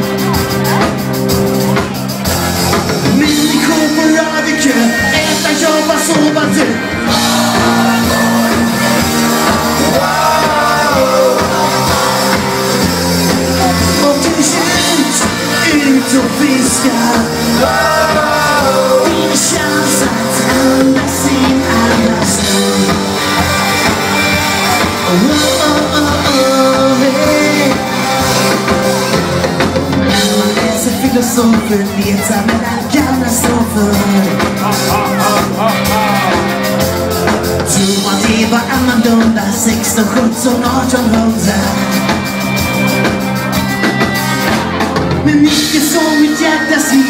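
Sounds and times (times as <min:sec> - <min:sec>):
drum kit: 0:00.0 - 0:47.0
electric guitars: 0:00.0 - 0:47.0
lead singer singing: 0:02.9 - 0:47.0.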